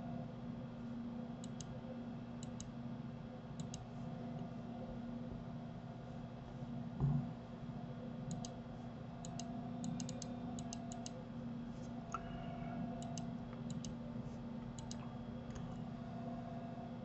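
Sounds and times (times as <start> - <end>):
faint steady hum: 0.0 - 17.0
computer mouse clicking: 1.4 - 1.7, 2.4 - 2.7, 3.6 - 3.9, 8.3 - 8.6, 9.2 - 11.2, 13.0 - 14.0, 14.8 - 15.8.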